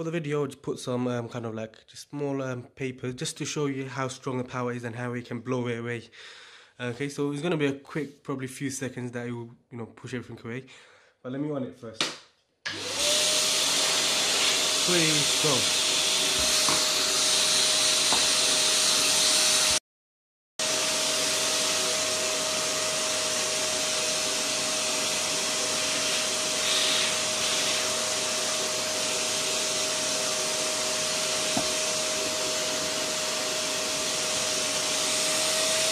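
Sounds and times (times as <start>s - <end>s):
vacuum cleaner blowing air: 12.7s - 19.8s, 20.6s - 35.9s.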